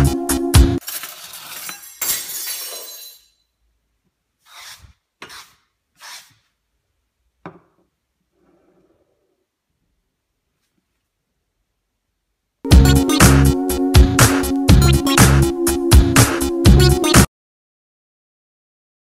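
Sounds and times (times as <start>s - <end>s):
background music: 0.0s - 0.8s, 12.7s - 17.3s.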